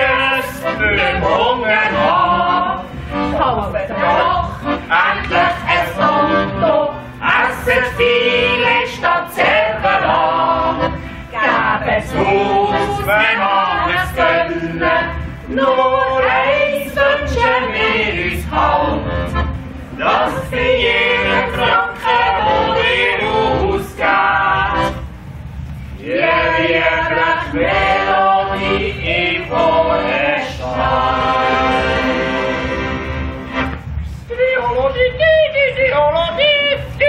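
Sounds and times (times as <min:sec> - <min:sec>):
voices singing yodel song: 0:00.0 - 0:19.3, 0:20.0 - 0:25.0, 0:26.0 - 0:32.8
accordion: 0:00.0 - 0:34.2.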